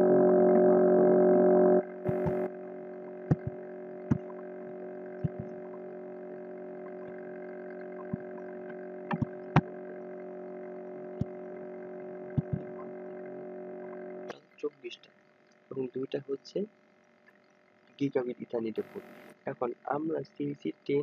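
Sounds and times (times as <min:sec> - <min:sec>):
loud droning hum: 0:00.0 - 0:15.1
faint electrical hum: 0:01.8 - 0:21.0
computer mouse clicks: 0:02.1 - 0:02.5, 0:09.1 - 0:09.7, 0:12.4 - 0:12.7.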